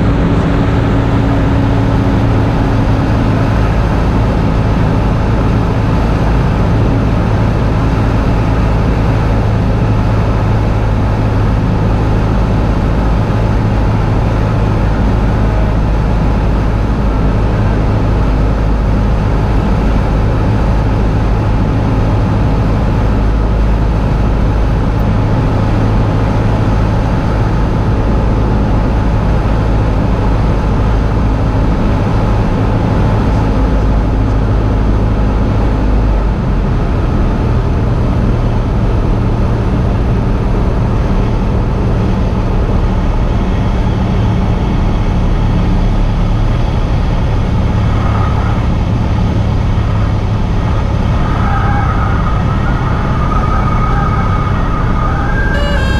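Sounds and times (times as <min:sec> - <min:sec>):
propeller plane engine drone: 0:00.0 - 0:55.9.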